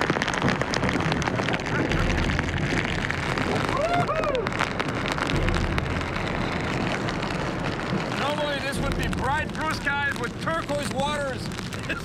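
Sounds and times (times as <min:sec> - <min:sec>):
heavy rain pelting: 0:00.0 - 0:12.0
low rumble: 0:00.0 - 0:12.0
man whooping yell: 0:03.6 - 0:04.6.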